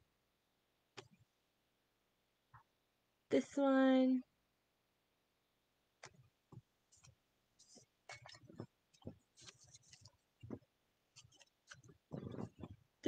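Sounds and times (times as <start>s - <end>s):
short rustles: 6.9s - 12.8s.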